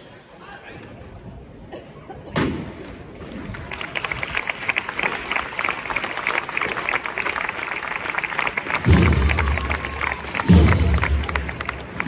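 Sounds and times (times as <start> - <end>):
crowd applause: 3.4 - 12.0.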